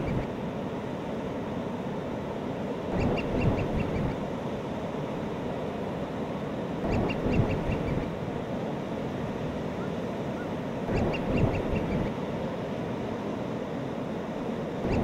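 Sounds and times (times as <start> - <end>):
seabird calling: 0.0 - 0.3, 2.9 - 4.2, 6.8 - 8.2, 9.7 - 12.2.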